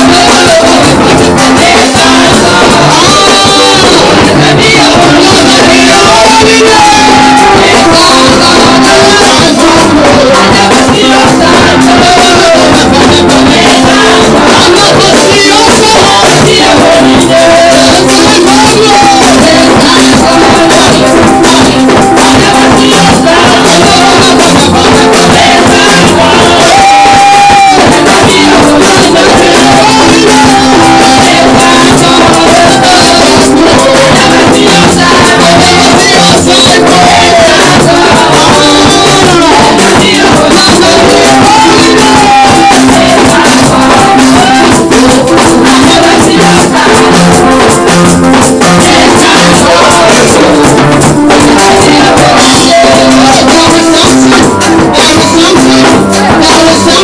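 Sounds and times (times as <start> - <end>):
drums and percussion: 0.0 - 57.0
gospel singing: 0.0 - 57.0.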